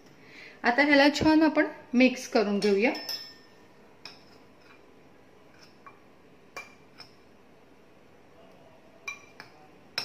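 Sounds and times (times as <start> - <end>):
metal spoon clinking glass bowl: 2.6 - 4.8, 5.5 - 7.2, 9.0 - 10.0.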